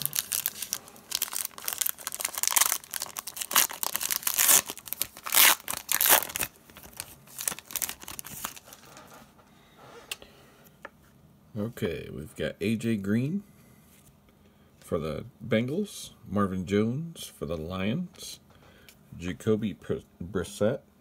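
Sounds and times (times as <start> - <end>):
foil wrapper crackling: 0.0 - 9.0.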